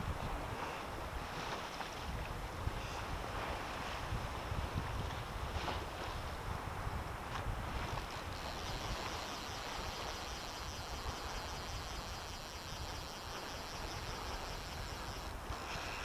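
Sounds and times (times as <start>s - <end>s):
small sea waves: 0.0s - 16.0s
wind hissing: 7.7s - 16.0s.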